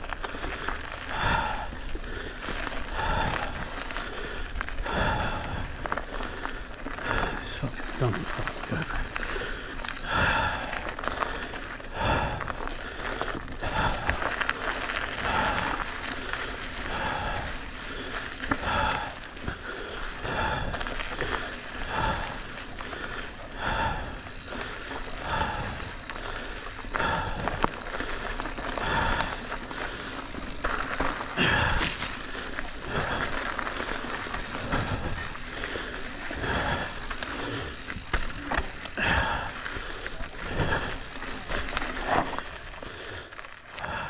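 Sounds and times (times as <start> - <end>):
tyres crunching over gravel: 0.0 - 43.8
heavy rhythmic breathing: 0.0 - 44.0
bike knocks and rattles: 27.9 - 32.2, 36.4 - 42.5.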